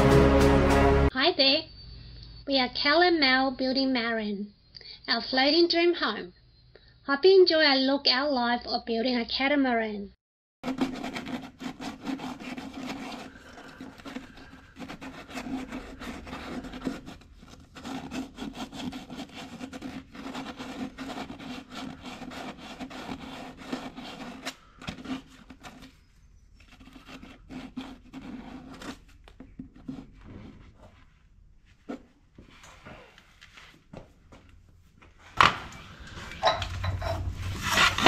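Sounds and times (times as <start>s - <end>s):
hand sanding fibreglass: 10.6s - 29.1s.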